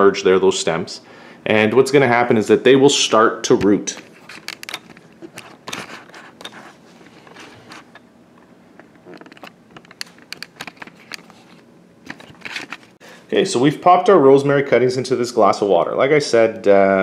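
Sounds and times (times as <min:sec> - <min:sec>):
camera handling noise: 0:08.8 - 0:13.0.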